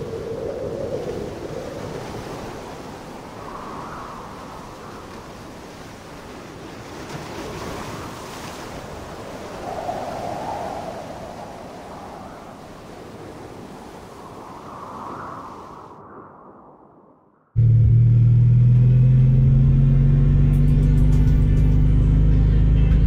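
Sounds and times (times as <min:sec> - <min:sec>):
ocean surf washing: 0:00.0 - 0:17.3.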